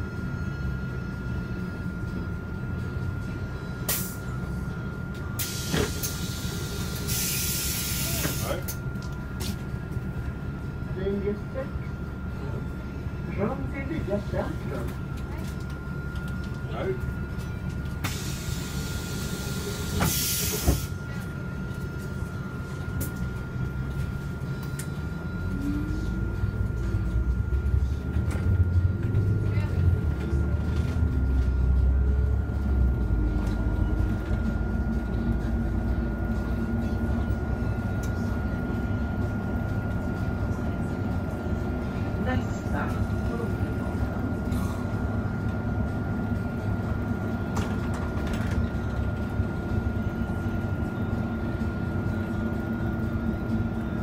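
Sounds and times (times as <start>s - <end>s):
bus engine running: 0.0s - 54.0s
thin steady whine: 0.0s - 54.0s
bus door opening hiss: 3.9s - 4.2s, 5.4s - 8.6s, 18.0s - 21.0s
air brake hisses: 5.4s - 8.6s, 18.0s - 21.0s.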